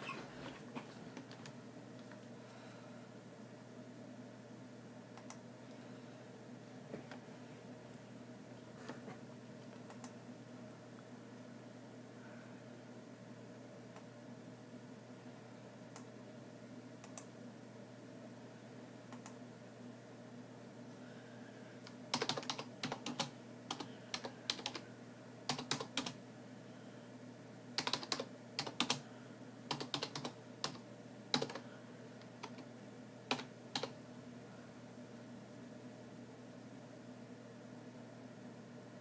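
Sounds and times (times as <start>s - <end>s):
typing on computer keyboard: 22.1s - 24.8s, 25.5s - 26.2s, 27.8s - 29.0s, 29.7s - 31.6s, 33.3s - 34.0s.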